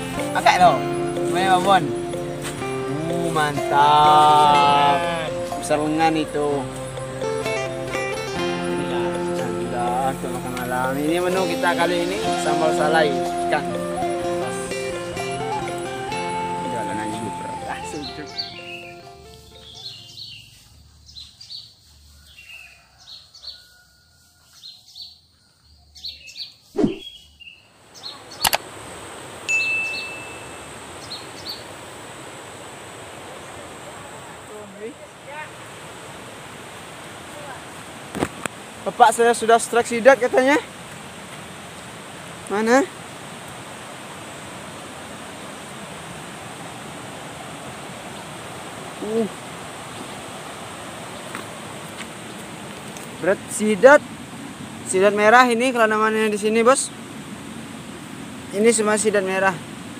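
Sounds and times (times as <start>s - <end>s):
flowing river water rushing: 0.0s - 19.6s, 28.2s - 59.9s
brief high tone: 0.6s - 6.3s, 11.3s - 19.3s
short high chirping calls: 17.3s - 21.6s, 26.1s - 28.6s, 29.5s - 31.6s
loud falling sweep: 26.8s - 27.1s
sharp click: 28.4s - 28.6s.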